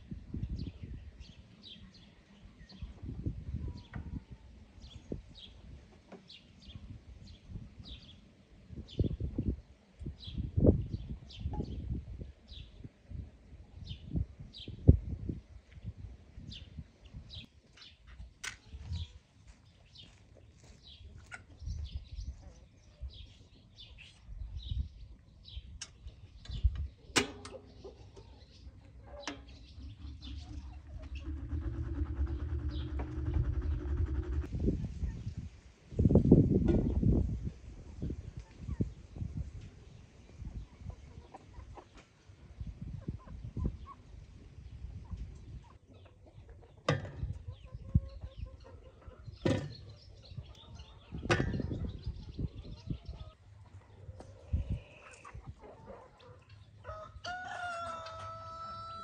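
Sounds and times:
birds chirping: 0:16.5 - 0:34.5, 0:43.4 - 0:57.1
chickens clucking: 0:20.0 - 0:24.2, 0:25.8 - 0:35.4, 0:36.7 - 0:59.0
steady low hum: 0:30.0 - 0:34.6.

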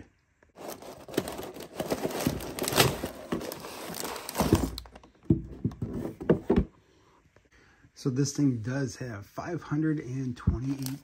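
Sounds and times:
cardboard scraping and rustling: 0:00.6 - 0:04.9.

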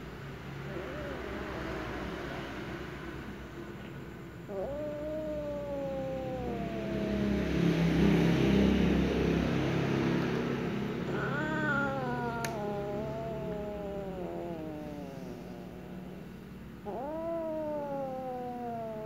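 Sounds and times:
cat growling: 0:00.0 - 0:03.2, 0:04.4 - 0:19.0
cat yowling: 0:00.6 - 0:02.3, 0:04.5 - 0:08.9, 0:11.0 - 0:19.0.

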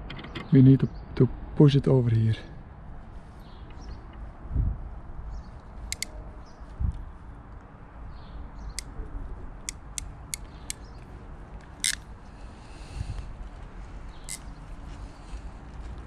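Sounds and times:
pliers crimping clicks: 0:05.9 - 0:06.1, 0:09.6 - 0:10.8, 0:11.7 - 0:12.0.

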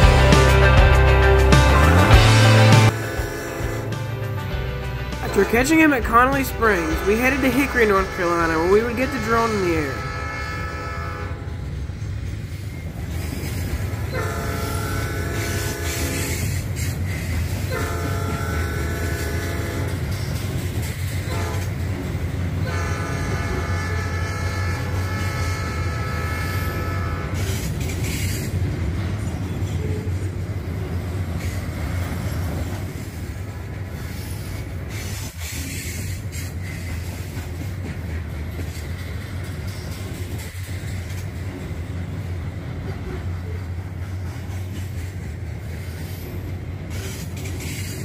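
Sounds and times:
locomotive air horn: 0:00.0 - 0:11.7, 0:14.1 - 0:16.6, 0:17.7 - 0:20.1, 0:21.2 - 0:21.8, 0:22.6 - 0:27.6
train rumbling past: 0:00.0 - 0:48.0.

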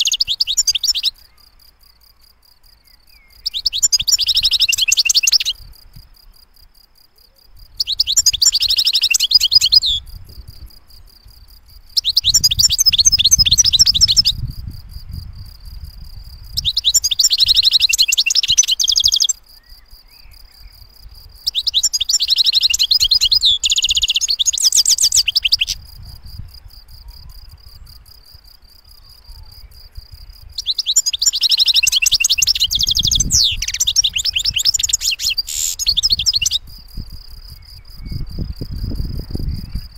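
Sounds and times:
goldfinch twittering song: 0:00.0 - 0:01.6, 0:02.7 - 0:05.6, 0:07.7 - 0:10.2, 0:11.9 - 0:14.5, 0:16.5 - 0:25.9, 0:28.9 - 0:38.8.

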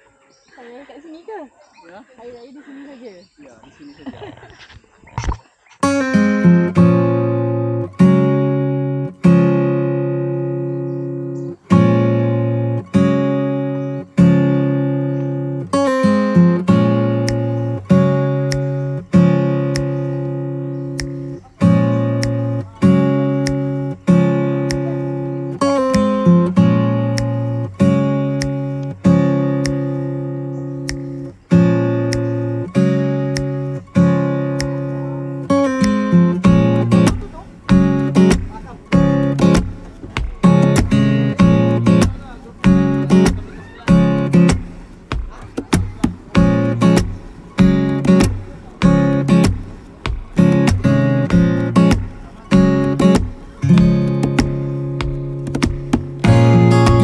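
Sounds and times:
acoustic guitar strumming chords: 0:05.8 - 0:57.0
light percussive tick: 0:13.8 - 0:57.0.

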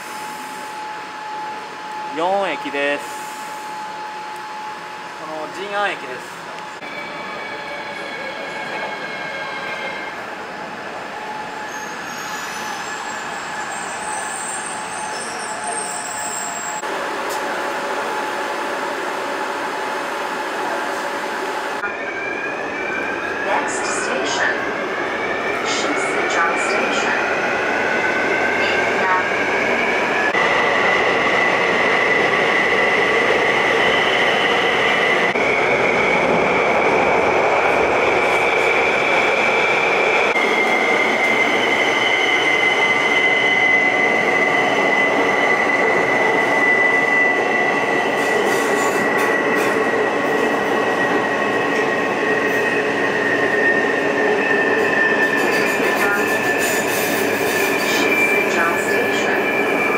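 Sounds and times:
train rumble: 0:54.7 - 0:59.6.

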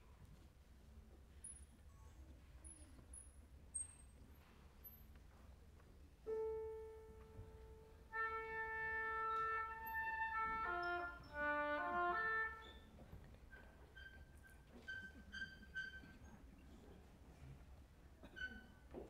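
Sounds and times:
piano note: 0:06.3 - 0:12.6
oboe playing: 0:08.1 - 0:12.6.

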